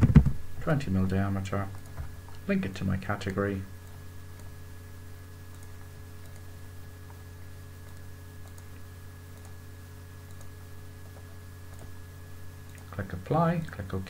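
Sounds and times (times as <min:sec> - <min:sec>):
low electrical hum: 0:00.0 - 0:14.0
keystrokes: 0:05.5 - 0:06.5, 0:07.8 - 0:08.7, 0:10.2 - 0:11.9
computer mouse clicks: 0:05.5 - 0:07.2, 0:07.8 - 0:09.6, 0:10.2 - 0:12.0.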